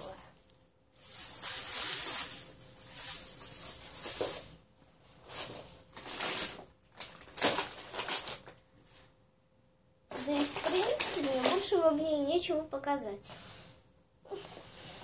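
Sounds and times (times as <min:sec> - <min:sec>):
plastic bag crinkling: 0:00.0 - 0:04.6, 0:05.3 - 0:08.6, 0:10.1 - 0:12.0.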